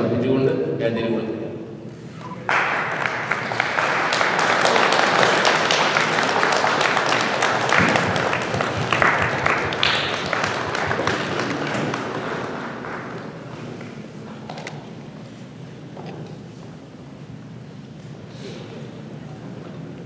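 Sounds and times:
hands clapping: 2.2s - 14.7s.

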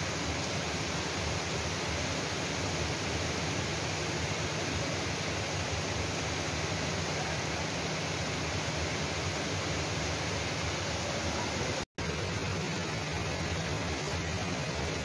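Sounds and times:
heavy rain falling: 0.0s - 15.0s.

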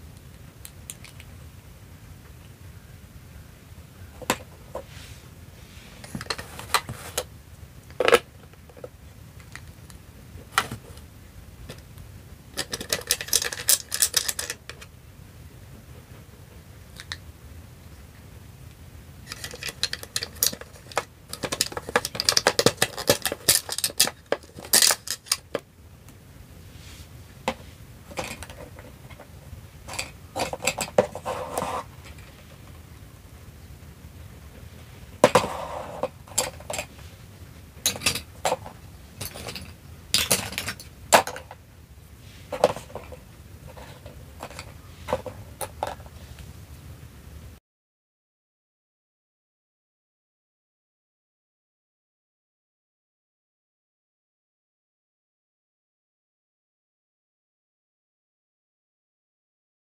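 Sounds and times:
plastic toy pieces clicking: 12.6s - 14.8s, 19.3s - 25.6s.

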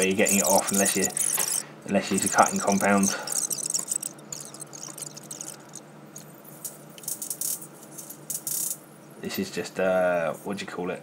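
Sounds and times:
light rattling and scratchy clicks: 0.0s - 7.6s.

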